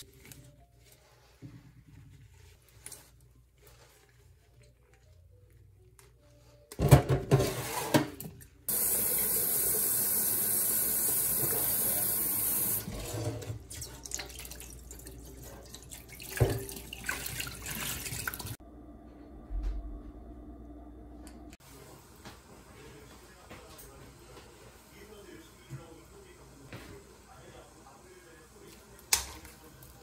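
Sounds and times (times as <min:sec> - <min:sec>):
water sloshing: 0:12.9 - 0:18.6.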